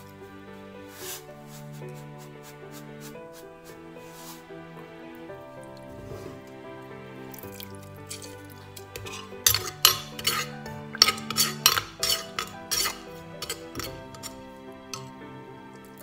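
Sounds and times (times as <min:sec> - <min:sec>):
background music: 0:00.0 - 0:16.0
metal spoon clinking in mortar: 0:08.1 - 0:15.1.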